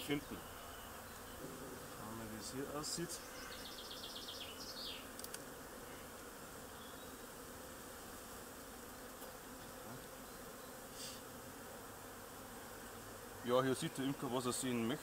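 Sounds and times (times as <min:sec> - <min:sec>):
honeybees buzzing: 0:00.0 - 0:15.0.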